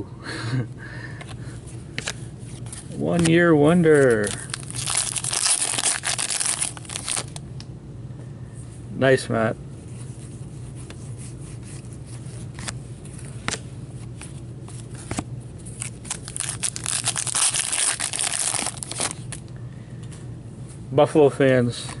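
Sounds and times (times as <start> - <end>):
foil wrapper crinkling and tearing: 3.2 - 7.4, 15.7 - 19.4.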